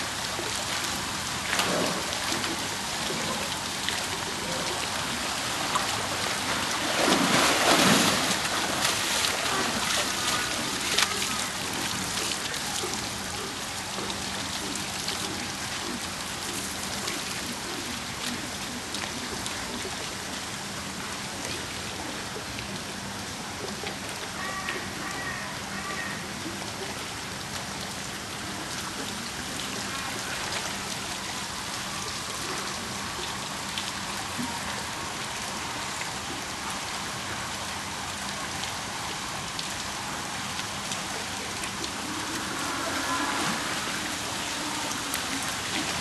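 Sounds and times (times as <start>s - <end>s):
steady watery hiss: 0.0s - 46.0s
water splashing and sloshing: 0.0s - 46.0s.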